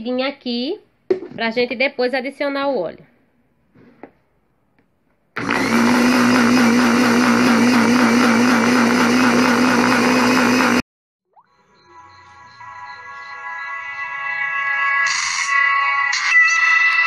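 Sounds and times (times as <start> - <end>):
blender motor humming: 5.4 - 10.8.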